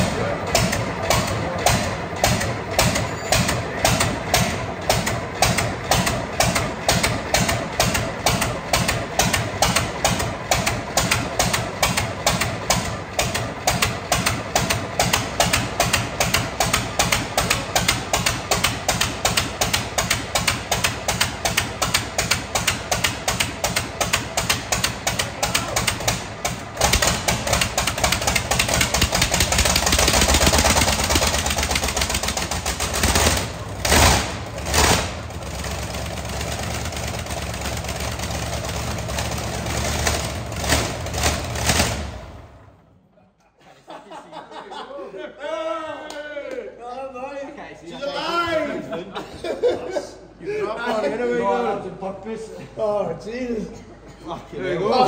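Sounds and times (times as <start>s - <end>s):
diesel engine cranking on starter: 0.0s - 42.9s
diesel engine running: 0.0s - 43.0s.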